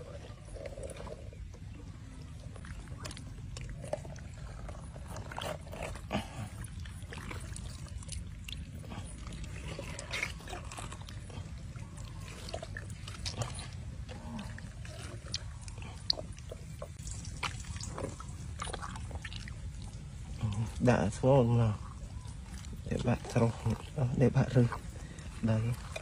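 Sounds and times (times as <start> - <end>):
wet squelches and slaps: 15.3 - 19.6.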